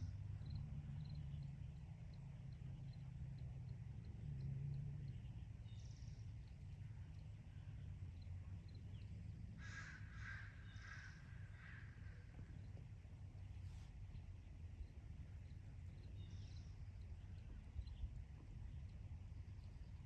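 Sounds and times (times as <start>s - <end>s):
low background rumble: 0.0s - 20.0s
crow cawing: 9.6s - 12.3s.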